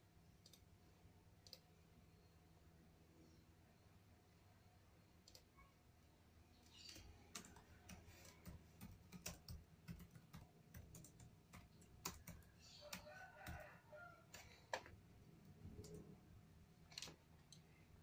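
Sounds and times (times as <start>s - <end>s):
keyboard and mouse clicks: 0.4s - 0.7s, 1.4s - 1.7s, 5.2s - 5.6s, 6.6s - 13.7s, 14.3s - 16.1s, 16.8s - 17.7s.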